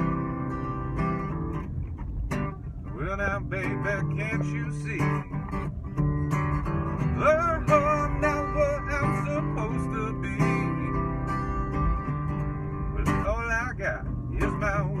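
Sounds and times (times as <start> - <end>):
acoustic guitar strummed and picked: 0.0 - 15.0
man singing blues: 2.9 - 5.5, 6.9 - 11.8, 12.8 - 15.0.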